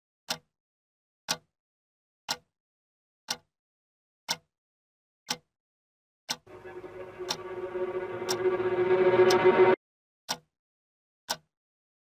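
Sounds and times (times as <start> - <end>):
wall clock ticking: 0.3 - 0.5, 1.3 - 1.5, 2.3 - 2.5, 3.3 - 3.5, 4.3 - 4.5, 5.3 - 5.5, 10.3 - 10.5, 11.3 - 11.5.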